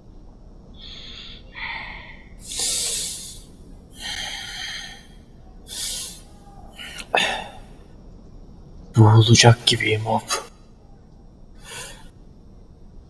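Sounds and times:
man breathing heavily: 0:00.8 - 0:07.8, 0:11.6 - 0:12.1.

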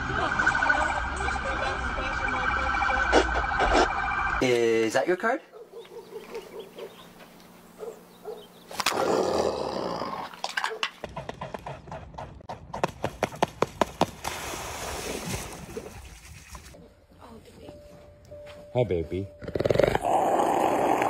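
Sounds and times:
wings and feet slapping water: 0:13.6 - 0:16.8
water splashing: 0:14.0 - 0:16.8.

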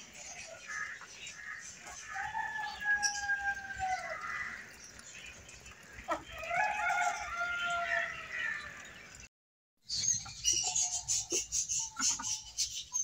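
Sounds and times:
rooster crowing: 0:02.0 - 0:04.4, 0:06.4 - 0:08.7.

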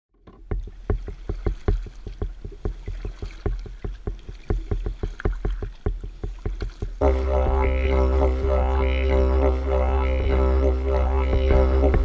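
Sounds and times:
water slapping against kayak hull: 0:00.2 - 0:09.0
low rumble: 0:07.0 - 0:12.0.

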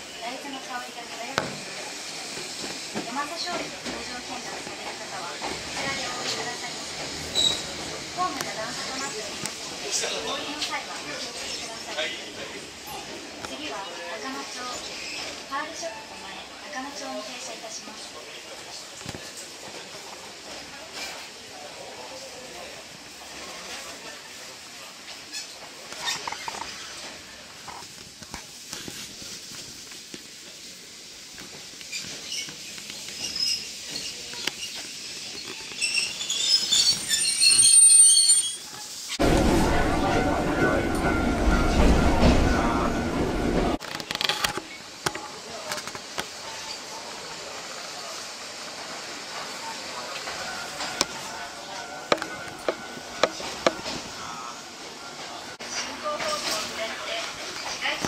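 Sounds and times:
train running hiss: 0:00.0 - 0:25.9, 0:26.8 - 0:43.8, 0:44.8 - 0:58.0
train running gear rumble: 0:01.0 - 0:10.0, 0:39.1 - 0:43.8, 0:48.4 - 0:54.3
train wheels squealing: 0:07.2 - 0:07.8, 0:33.1 - 0:38.8
wheels clicking over rail joints: 0:52.1 - 0:54.0.

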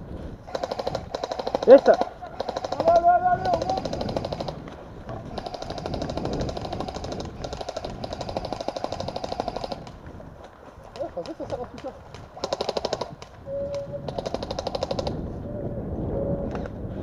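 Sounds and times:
airsoft guns firing full auto: 0:00.5 - 0:04.6, 0:05.3 - 0:10.0, 0:11.0 - 0:13.3, 0:14.1 - 0:15.2.

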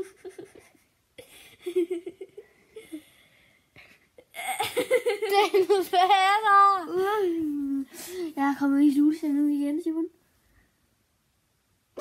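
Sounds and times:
child giggling: 0:00.0 - 0:03.2, 0:04.0 - 0:07.3.

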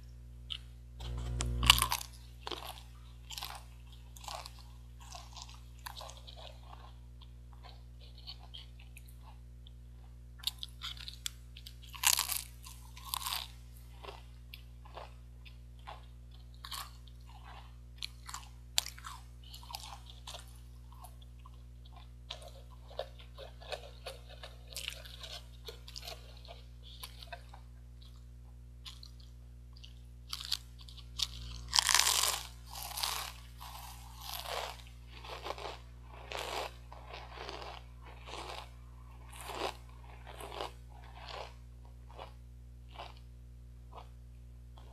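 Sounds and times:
low electrical hum: 0:00.0 - 0:44.9
crisps crunching: 0:01.0 - 0:07.0, 0:10.4 - 0:21.1, 0:28.8 - 0:43.2.

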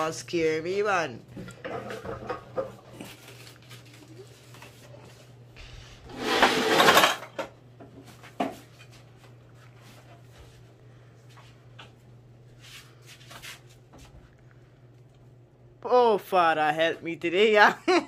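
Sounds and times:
steady low hum: 0:00.0 - 0:18.0
objects rustling and scraping: 0:01.3 - 0:14.4.

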